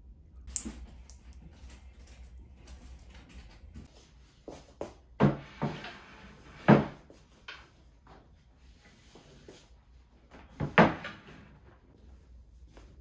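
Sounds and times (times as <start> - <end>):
clunks and knocks in a kitchen: 5.0 - 7.8, 10.3 - 11.5.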